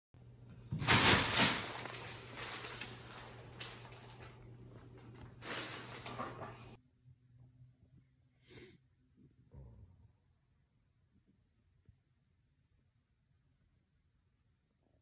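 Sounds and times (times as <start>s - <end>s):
plastic bag crinkling: 0.9s - 6.3s
low steady hum: 1.9s - 15.0s.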